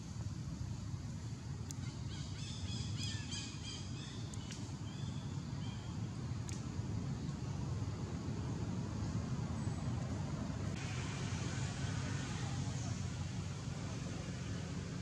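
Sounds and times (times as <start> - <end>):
high chirping calls: 1.8 - 5.9.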